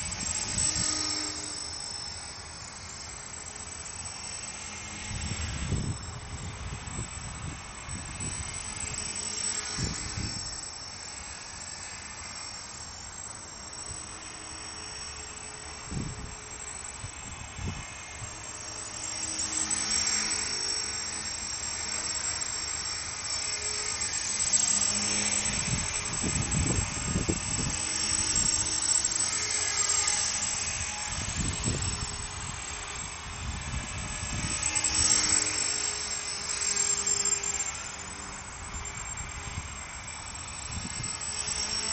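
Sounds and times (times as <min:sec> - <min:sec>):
rc helicopter high whine: 0:00.0 - 0:41.9
rotor blades humming: 0:00.0 - 0:41.9
wind rumbling on microphone: 0:05.1 - 0:08.6, 0:09.7 - 0:10.4, 0:15.8 - 0:16.3, 0:25.4 - 0:28.6, 0:31.1 - 0:34.7, 0:40.6 - 0:41.2.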